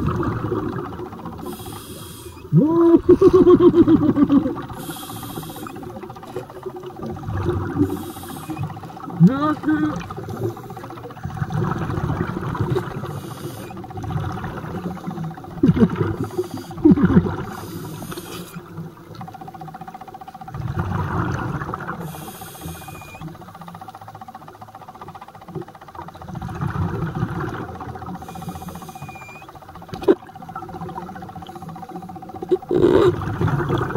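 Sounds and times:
exhaled bubbles rumbling: 0:00.0 - 0:23.5, 0:26.1 - 0:33.9
regulator hissing inhalations: 0:01.4 - 0:02.5, 0:04.8 - 0:05.8, 0:07.9 - 0:08.7, 0:13.0 - 0:13.8, 0:16.2 - 0:16.8, 0:17.5 - 0:18.6, 0:22.0 - 0:23.3, 0:28.2 - 0:29.5
wavering squeaks: 0:22.7 - 0:23.3, 0:28.2 - 0:30.2.

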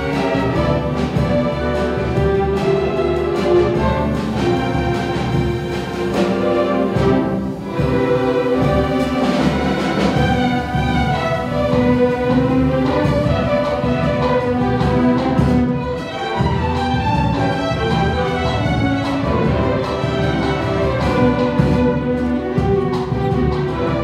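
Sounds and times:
string orchestra playing: 0:00.0 - 0:24.0.

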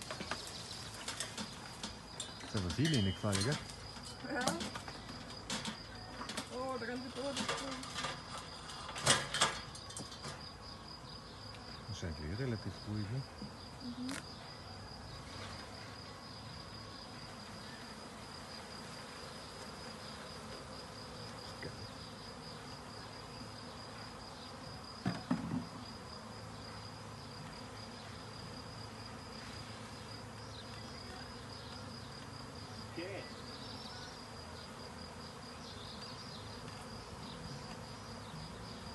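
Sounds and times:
bee swarm buzzing: 0:00.0 - 0:38.9
knocks on hive box: 0:25.0 - 0:25.8.

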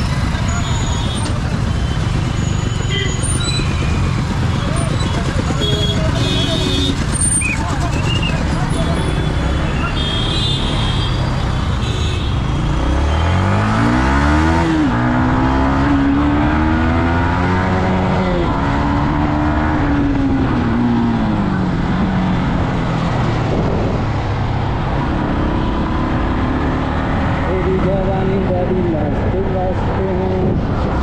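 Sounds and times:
motorcycle engine accelerating: 0:00.0 - 0:09.7, 0:12.7 - 0:29.0
wind noise: 0:22.0 - 0:25.2.

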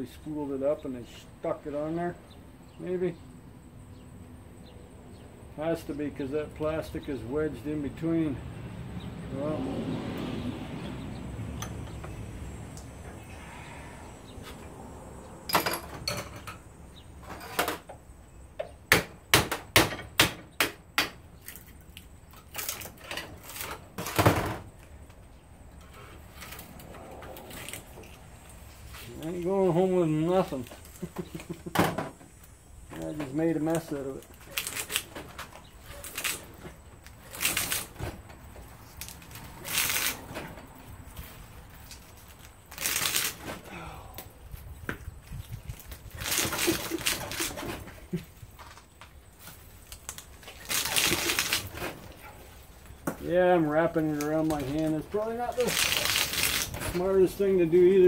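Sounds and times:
wire rustling: 0:32.4 - 0:43.8, 0:44.5 - 0:53.0, 0:53.9 - 0:57.4
wire scraping out of slots: 0:49.8 - 0:52.4.

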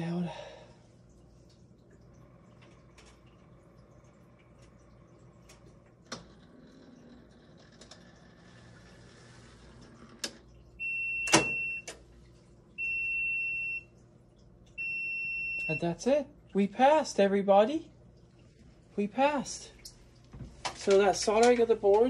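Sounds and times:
faint hum: 0:00.0 - 0:22.0
washing machine electronic beep: 0:10.8 - 0:12.1, 0:12.7 - 0:14.0, 0:14.8 - 0:16.2.

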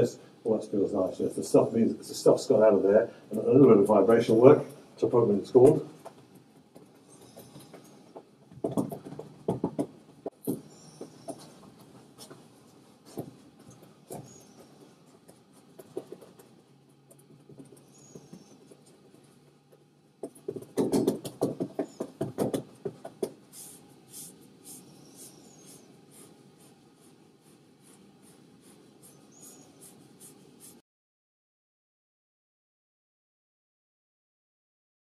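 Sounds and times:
percussive massage strokes: 0:00.0 - 0:30.8
hands rubbing on towel: 0:06.8 - 0:16.6, 0:20.4 - 0:30.8.

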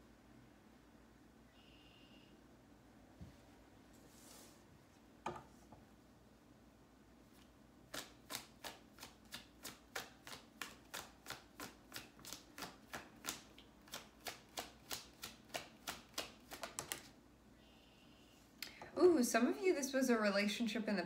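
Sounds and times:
cards being shuffled: 0:07.9 - 0:17.1.

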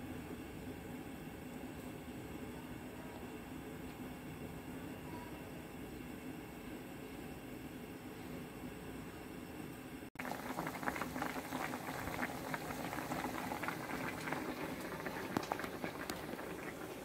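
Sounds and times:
water boiling in a metal wok: 0:10.2 - 0:17.0.

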